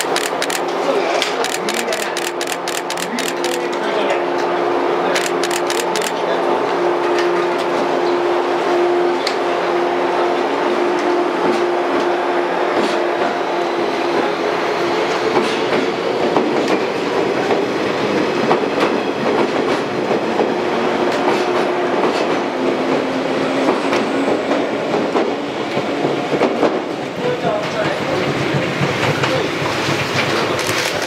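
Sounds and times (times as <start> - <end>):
train motor whine: 0.0 - 3.7, 5.2 - 6.2
train wheels clicking over rail joints: 0.0 - 3.9, 5.2 - 6.1, 23.6 - 31.0.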